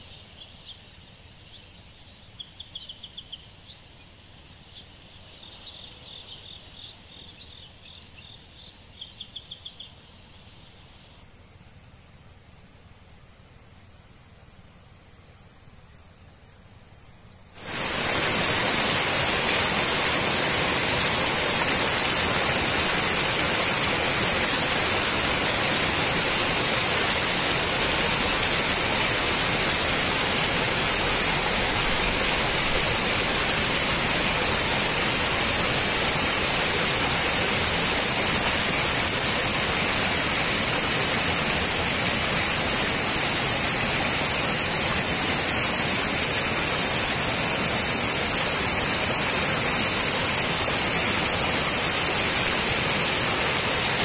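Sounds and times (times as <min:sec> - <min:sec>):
stream cascading over boulders: 0:17.6 - 0:54.0.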